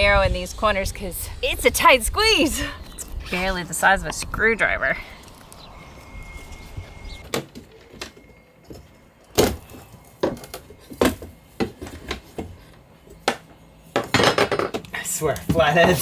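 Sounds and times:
faint steady high tone: 5.7 - 11.6.

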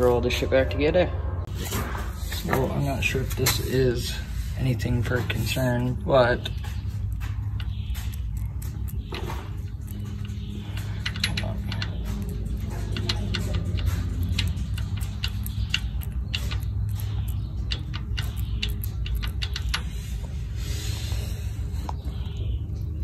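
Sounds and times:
steady low hum: 0.0 - 23.0
metallic gear teeth clicking: 5.0 - 20.3.

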